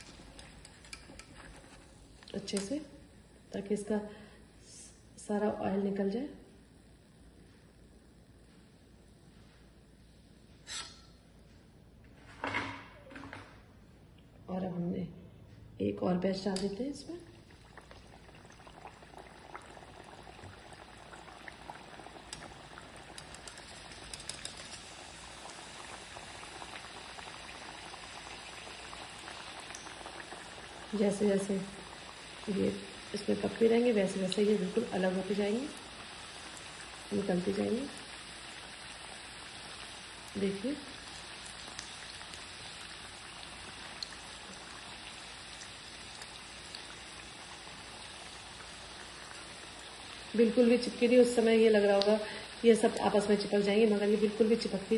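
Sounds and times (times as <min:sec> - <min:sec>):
dough bubbling in hot oil: 0:00.0 - 0:04.4, 0:17.0 - 0:54.9
skimmer clicking against pan: 0:23.2 - 0:24.9.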